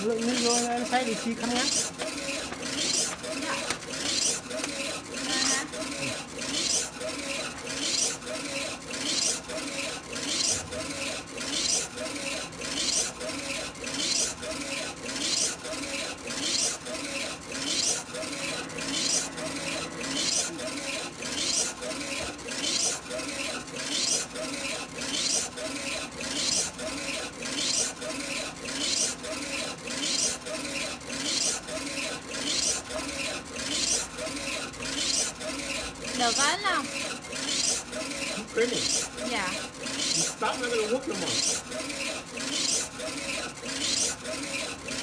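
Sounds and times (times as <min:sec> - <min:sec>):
printer carriage rhythmic hissing rasp: 0:00.0 - 0:45.0.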